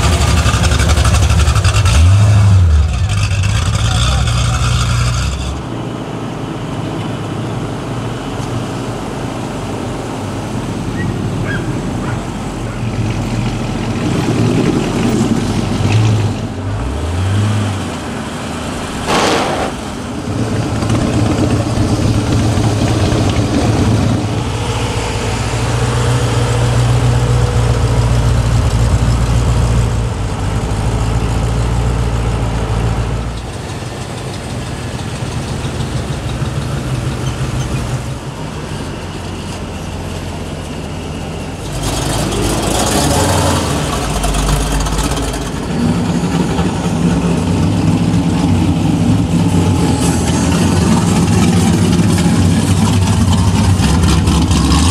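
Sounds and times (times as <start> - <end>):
engine revving: 0.0 - 5.7, 12.4 - 32.4, 41.6 - 54.9
car engines burbling: 0.0 - 54.9
sharp crack: 19.0 - 20.2.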